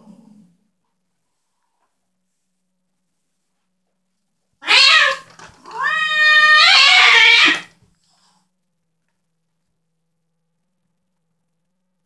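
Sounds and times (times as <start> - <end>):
cat yowling: 4.6 - 7.7.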